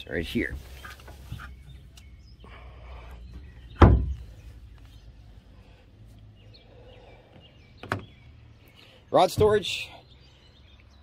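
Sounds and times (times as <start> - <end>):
metal hatch lid thud: 3.7 - 4.3.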